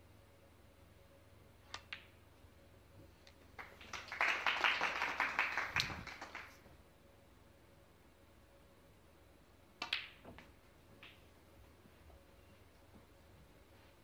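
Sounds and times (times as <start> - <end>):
snooker balls clicking: 1.7 - 2.2, 9.8 - 11.4
audience applause: 3.6 - 6.6.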